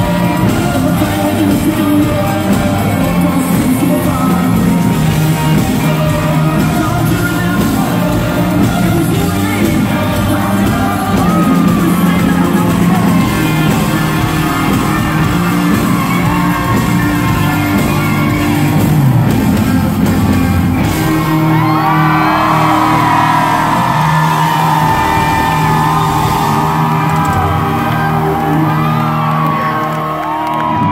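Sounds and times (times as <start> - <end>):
country-rock band playing: 0.0 - 30.9
electric guitar lead: 0.0 - 30.9
person singing: 0.0 - 30.9
crowd shouting: 5.4 - 19.2, 20.6 - 30.9.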